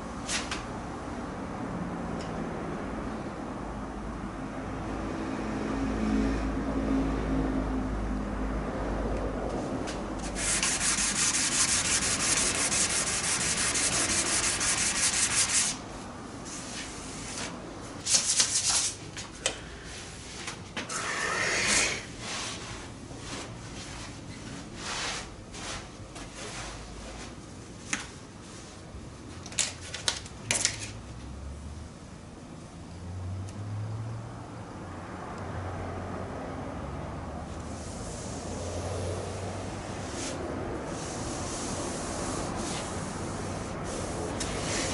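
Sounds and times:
sandpaper scraping back and forth: 10.2 - 15.8, 39.9 - 44.9.

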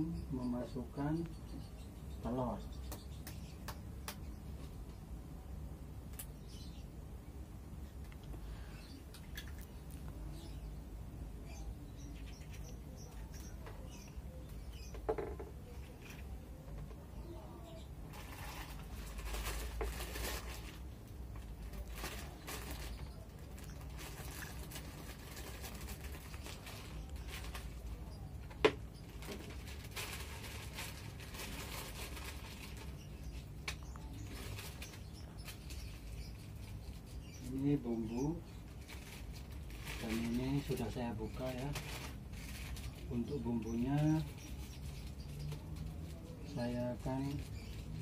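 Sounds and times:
plastic packet crinkling: 21.7 - 28.0, 29.1 - 33.0.

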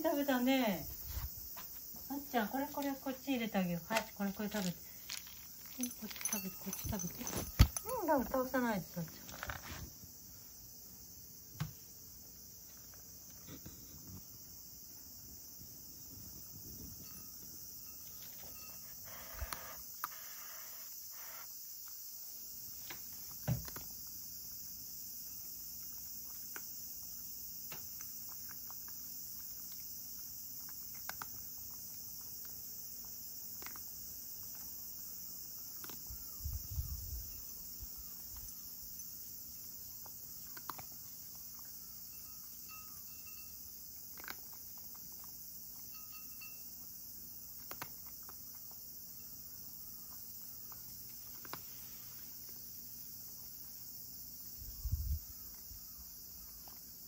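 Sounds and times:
cat crunching dry kibble: 4.0 - 7.8, 25.4 - 36.2, 39.4 - 41.8, 43.9 - 45.9, 47.1 - 49.8, 50.4 - 51.7.

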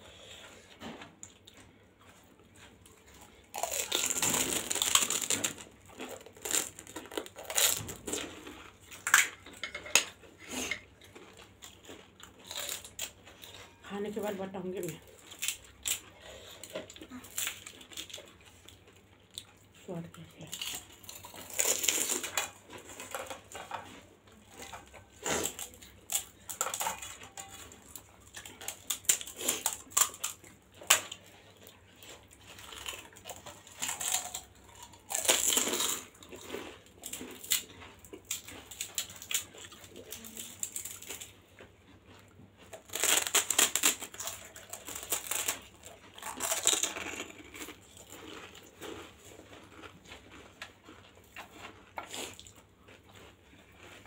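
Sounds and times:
crisp shell crunching: 3.5 - 9.3, 20.5 - 23.6, 42.7 - 52.6
wet squishing chewing: 20.4 - 54.0.

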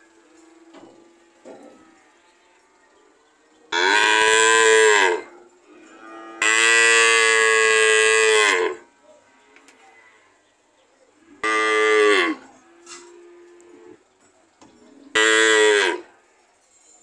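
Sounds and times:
cattle mooing: 3.8 - 8.9, 11.4 - 14.0, 15.1 - 16.1.

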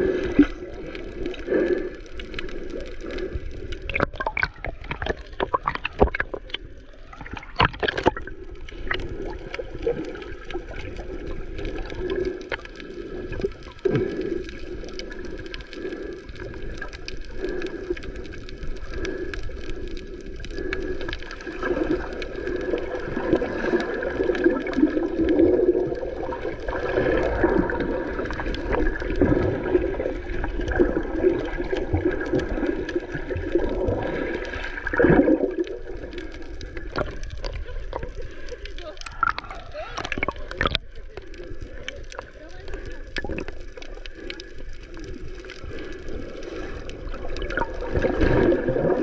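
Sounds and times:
small crackling clicks: 0.0 - 49.0
underwater water rushing and bubbling: 0.0 - 49.0.

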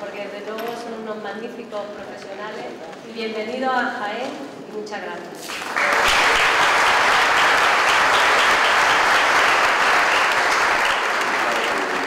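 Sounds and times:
audience applauding: 5.5 - 12.0.

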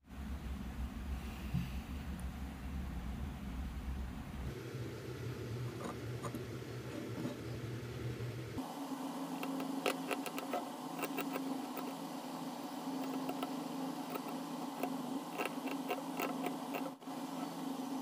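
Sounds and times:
needle scratching stone: 9.4 - 12.0, 12.8 - 17.6.

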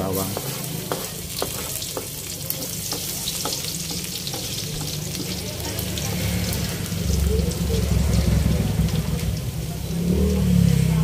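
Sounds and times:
spatula scraping wok: 0.0 - 10.9
garlic sizzling in oil: 0.0 - 11.0.

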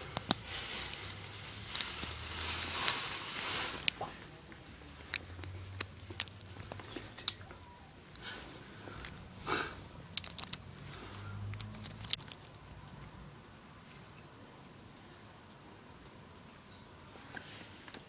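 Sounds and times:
plastic and metal parts clicking: 5.0 - 7.5, 10.1 - 12.6.

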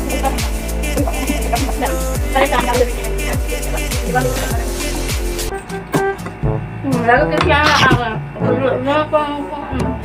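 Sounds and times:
background music with beat: 0.0 - 7.2.

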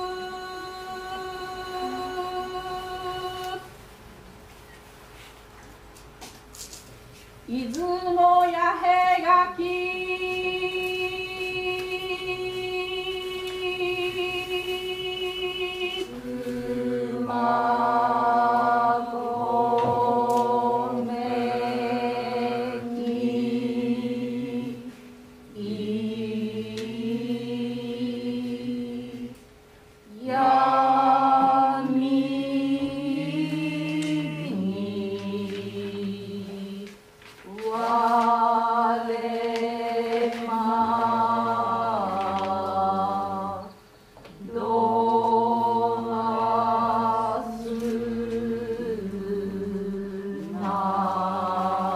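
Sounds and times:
voices chanting in unison: 8.8 - 29.4, 30.1 - 36.9, 37.5 - 51.9.

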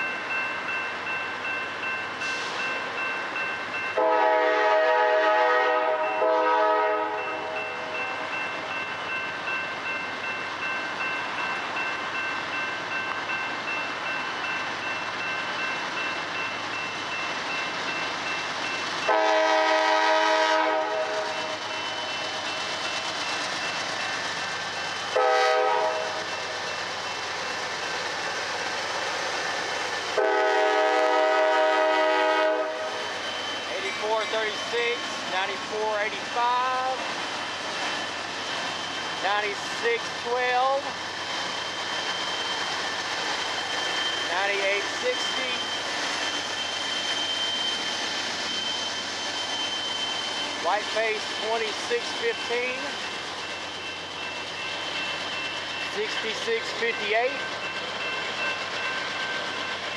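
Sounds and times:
freight train rumbling: 0.0 - 59.9
train air horn blasts: 4.0 - 7.6, 19.1 - 21.5, 25.1 - 26.2, 30.2 - 33.0.

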